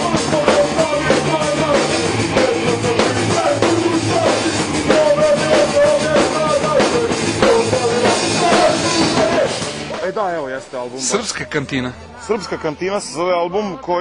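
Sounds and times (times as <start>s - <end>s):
person singing into a microphone: 0.0s - 9.8s
drum kit: 0.0s - 11.5s
guitars: 0.0s - 12.2s.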